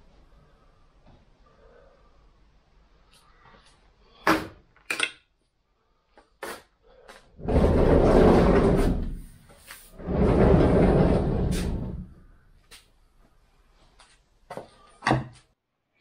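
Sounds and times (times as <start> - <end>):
sliding door rolling along track: 7.4 - 12.3.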